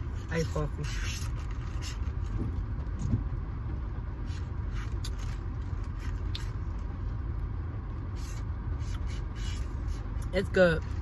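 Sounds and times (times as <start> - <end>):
car cabin rumble: 0.0 - 11.0.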